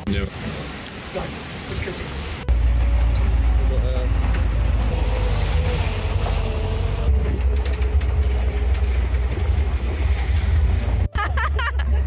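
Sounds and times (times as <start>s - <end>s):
car driving rumble: 0.3s - 12.0s.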